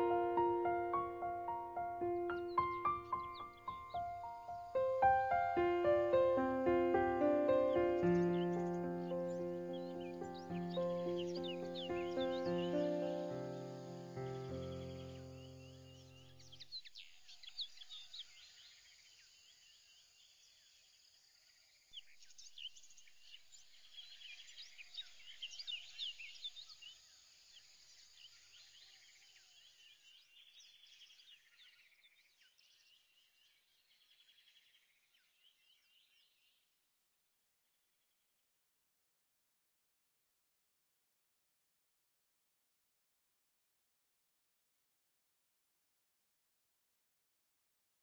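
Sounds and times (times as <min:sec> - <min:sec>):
soft steady hiss: 0:00.0 - 0:16.3
birds chirping: 0:00.0 - 0:18.2.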